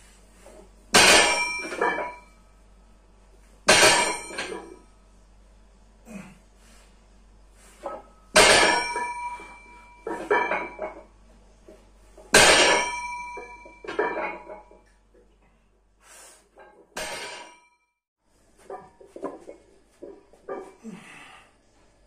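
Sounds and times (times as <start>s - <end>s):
weight plates clanking: 7.8s - 14.9s.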